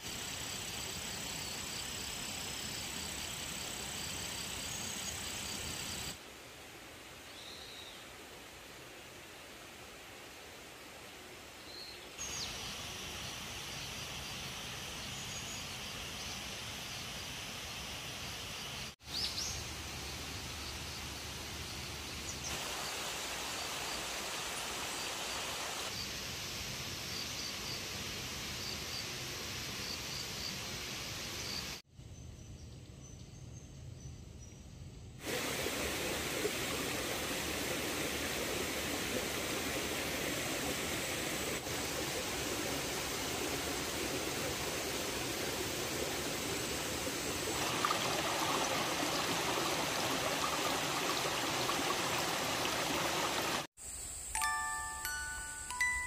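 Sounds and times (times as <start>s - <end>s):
soft outdoor hush: 0.0s - 56.0s
stream running over rocks: 2.7s - 26.0s, 35.2s - 53.7s.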